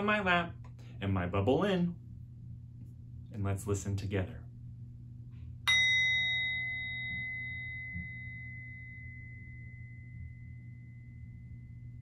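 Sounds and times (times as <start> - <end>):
singing bowl ringing: 5.6 - 12.0.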